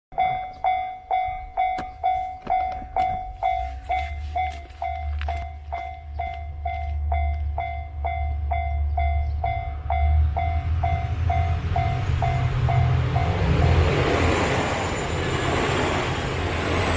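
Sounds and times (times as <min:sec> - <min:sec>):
level crossing bell ringing: 0:00.2 - 0:13.4
electric train rumble: 0:00.2 - 0:16.9.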